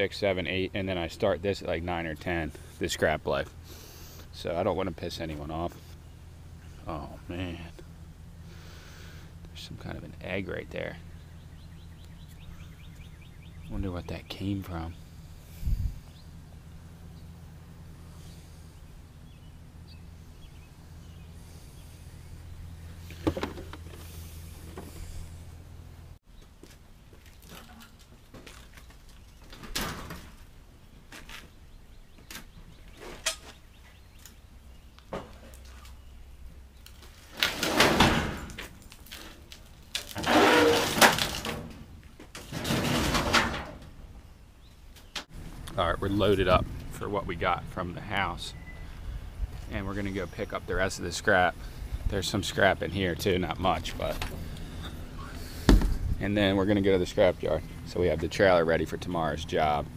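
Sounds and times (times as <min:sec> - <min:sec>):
engine idling with low hum: 0:00.0 - 0:59.9
scrap metal clattering and scraping: 0:37.1 - 0:44.1.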